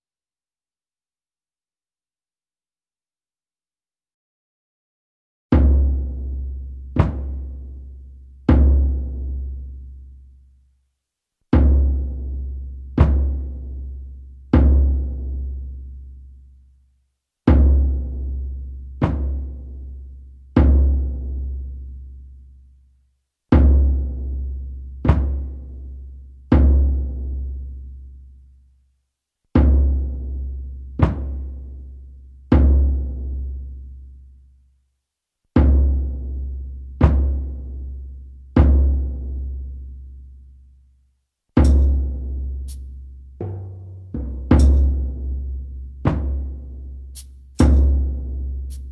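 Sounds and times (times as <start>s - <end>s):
frame drum beats: 5.5s - 7.8s, 11.6s - 13.9s, 17.5s - 20.0s, 23.6s - 27.4s, 29.6s - 31.8s, 35.6s - 39.6s, 41.6s - 48.9s.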